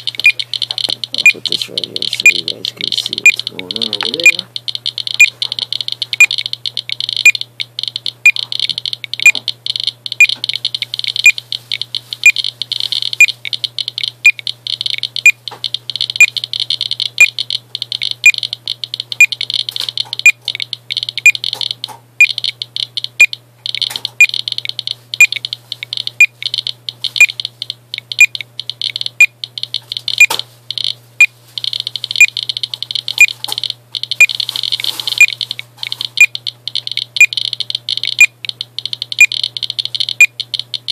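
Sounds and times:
geiger counter crackle: 0:00.0 - 0:40.9
high-pitched alarm beeps: 0:00.0 - 0:40.9.

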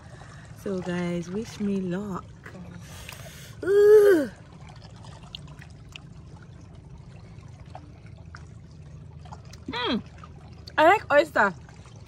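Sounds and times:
faint small splashes: 0:00.0 - 0:12.0
sea water lapping softly: 0:00.0 - 0:12.0
drawn-out vocal cry: 0:03.6 - 0:04.4.

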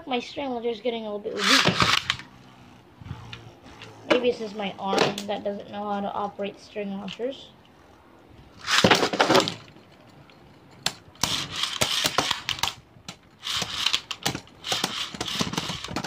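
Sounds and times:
string launcher whir: 0:01.3 - 0:04.9, 0:08.6 - 0:09.4, 0:11.2 - 0:12.8, 0:13.4 - 0:16.0.

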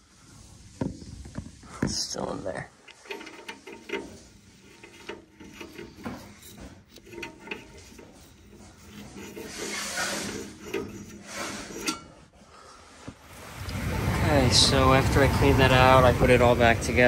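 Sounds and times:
wire scraping in burner: 0:02.7 - 0:12.4.

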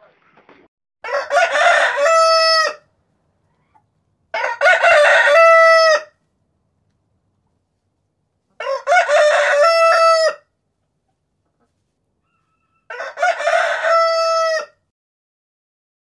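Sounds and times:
rooster crowing: 0:01.0 - 0:02.9, 0:04.3 - 0:06.2, 0:08.6 - 0:10.5, 0:12.2 - 0:14.8.

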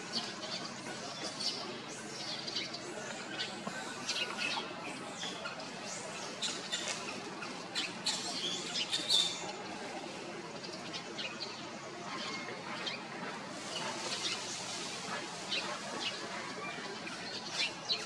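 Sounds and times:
steady background hiss: 0:12.6 - 0:18.0.

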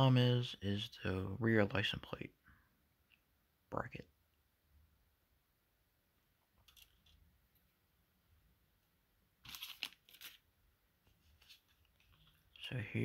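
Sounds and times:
plastic bag crinkling: 0:09.4 - 0:10.5.

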